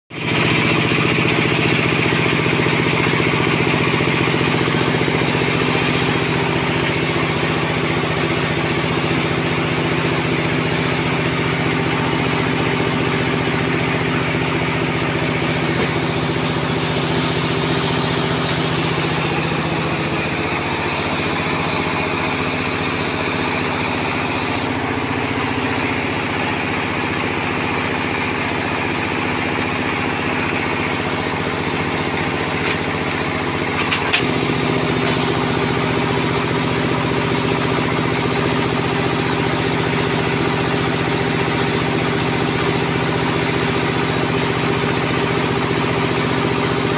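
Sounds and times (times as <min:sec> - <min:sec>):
sawmill power unit humming: 0:00.1 - 0:46.9.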